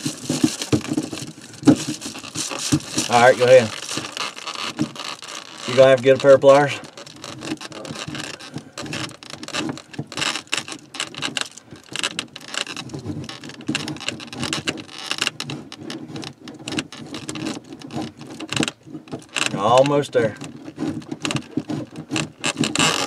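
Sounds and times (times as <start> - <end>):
drain fitting clicking and scraping: 0.0 - 23.0.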